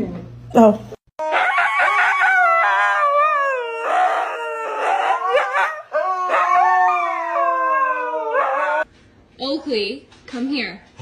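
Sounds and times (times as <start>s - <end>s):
dogs howling: 1.2s - 8.9s.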